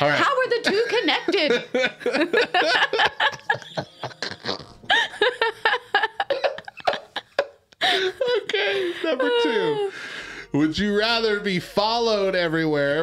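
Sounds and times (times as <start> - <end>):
woman laughing: 0.4 - 10.0
man laughing: 0.7 - 9.9.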